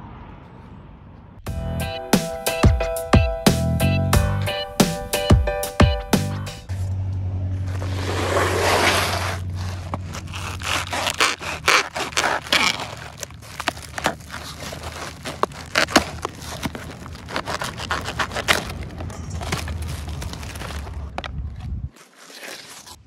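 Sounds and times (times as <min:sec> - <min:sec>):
foam crackling and rustling: 0:07.6 - 0:23.0
knife slicing foam wrap: 0:07.7 - 0:20.9, 0:22.0 - 0:23.0.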